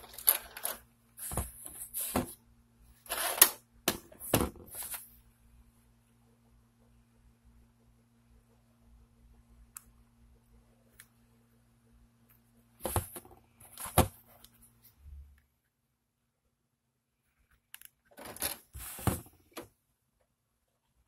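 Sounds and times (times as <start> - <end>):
low hum of running unit: 0.0 - 15.4.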